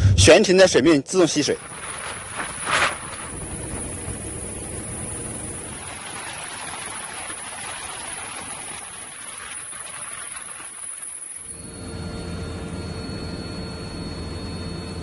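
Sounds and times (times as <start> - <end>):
high-pitched whine: 1.5 - 15.0
helicopter rotor and engine noise: 1.6 - 15.0.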